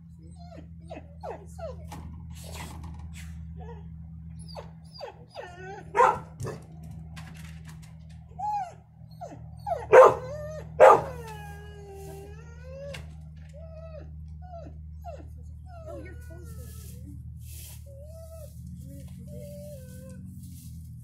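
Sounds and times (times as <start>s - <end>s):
dog whining: 0.3s - 1.9s, 3.6s - 6.6s, 8.4s - 16.6s
dog yelping: 4.4s - 6.6s, 8.4s - 11.6s.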